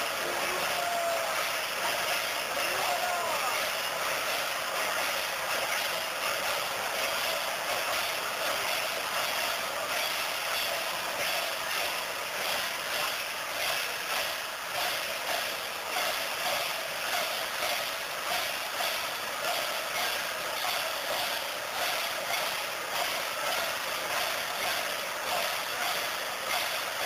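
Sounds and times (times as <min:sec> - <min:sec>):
festival crowd din: 0:00.0 - 0:27.0.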